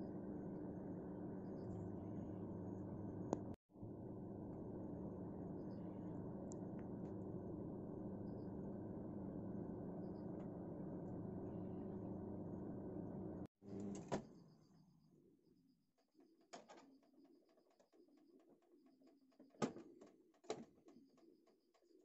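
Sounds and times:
microwave oven humming: 0.0s - 14.1s.

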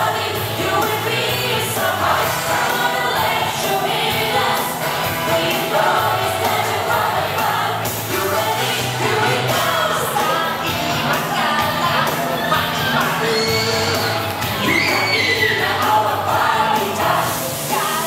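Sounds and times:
music with singing over loudspeakers: 0.0s - 18.0s.

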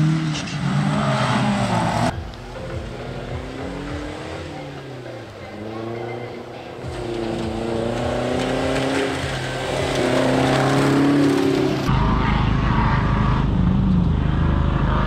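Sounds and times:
distant engine: 0.0s - 15.0s
rally car engine revving: 0.0s - 15.0s
heavy low rumble: 2.1s - 4.3s, 11.7s - 15.0s.

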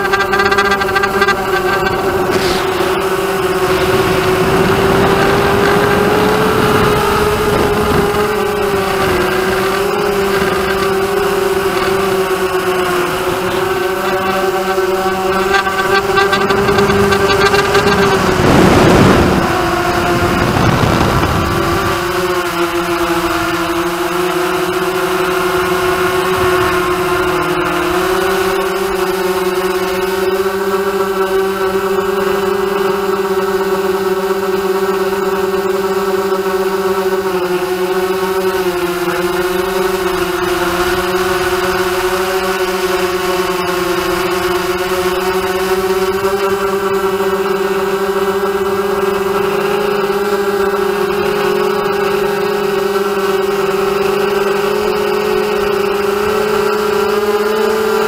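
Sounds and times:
drone motors buzzing: 0.0s - 58.0s
rush of air noise: 1.4s - 10.6s, 16.2s - 22.1s.

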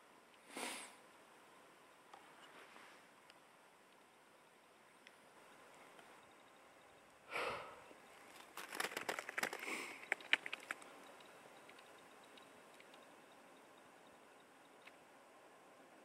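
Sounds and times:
person sniffing: 0.5s - 1.0s
sharp crackles and clicks: 8.3s - 13.1s.

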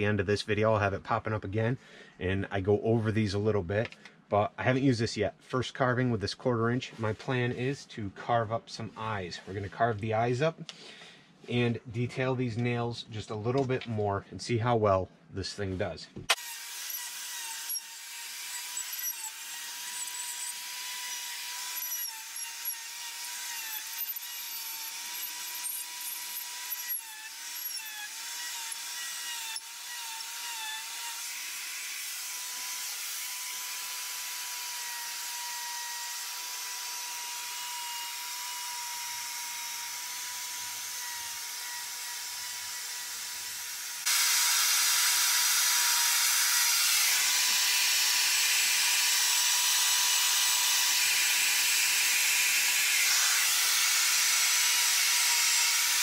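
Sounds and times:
die grinder whining: 16.3s - 56.0s.

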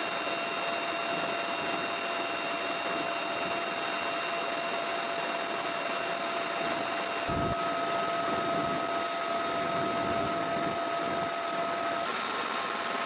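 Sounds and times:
helicopter engine and rotor noise: 0.0s - 13.0s
high whining tones: 6.2s - 12.1s.

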